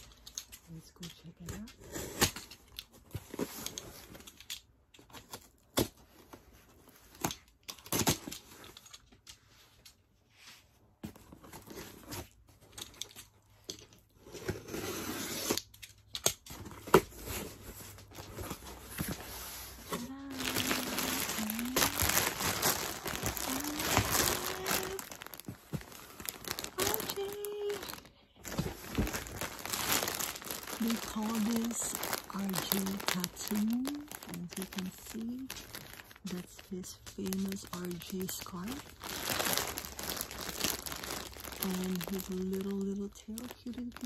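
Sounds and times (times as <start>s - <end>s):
plastic bag crinkling: 17.4s - 44.0s.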